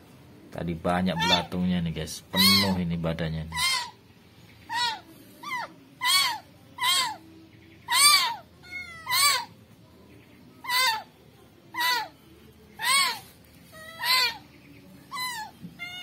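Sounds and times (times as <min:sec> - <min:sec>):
kitten mewing: 0:01.1 - 0:01.5, 0:02.4 - 0:02.8, 0:03.5 - 0:04.0, 0:04.7 - 0:07.2, 0:07.9 - 0:09.5, 0:12.8 - 0:14.4, 0:15.1 - 0:16.0.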